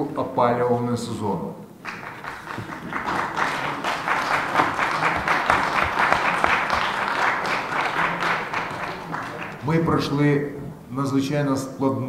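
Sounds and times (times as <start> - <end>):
crowd applauding: 1.8 - 10.0.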